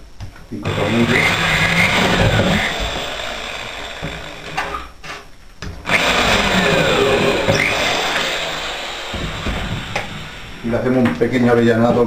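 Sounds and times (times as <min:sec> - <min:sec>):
electric drill boring into board: 0:00.6 - 0:04.9, 0:05.8 - 0:11.0.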